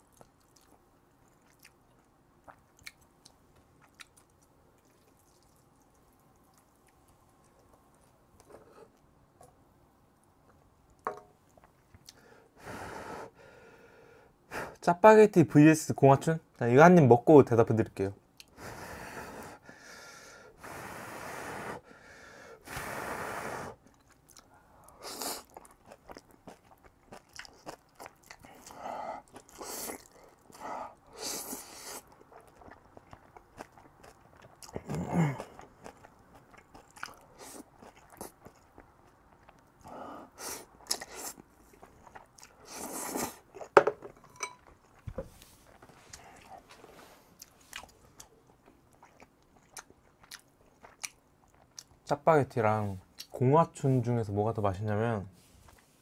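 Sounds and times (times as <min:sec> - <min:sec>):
wet chewing: 0:00.0 - 0:09.6, 0:23.8 - 0:43.8, 0:44.4 - 0:52.0.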